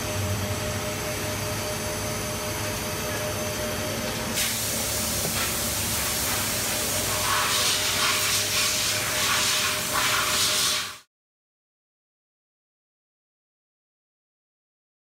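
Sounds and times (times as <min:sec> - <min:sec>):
milling machine hum: 0:00.0 - 0:09.2
spray hiss: 0:04.4 - 0:11.1.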